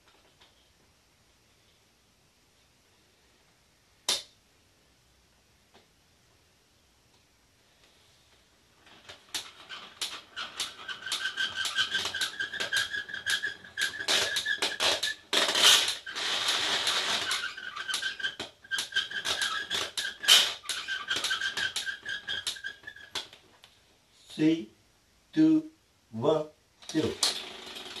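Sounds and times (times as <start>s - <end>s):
steady squeak: 8.8s - 23.5s
plastic crank clicking: 8.9s - 23.4s, 26.8s - 28.0s.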